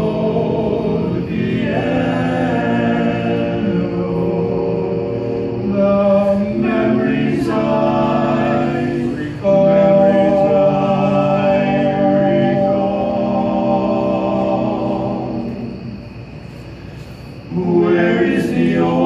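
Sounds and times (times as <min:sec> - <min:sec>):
men singing a cappella harmony: 0:00.0 - 0:16.3, 0:17.4 - 0:19.0.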